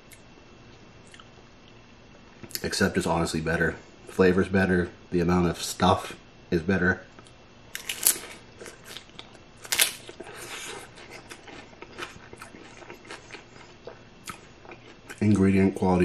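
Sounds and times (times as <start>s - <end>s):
chewing with small crunches: 1.0s - 1.8s, 7.2s - 15.6s
taco shell crunching: 7.7s - 15.3s.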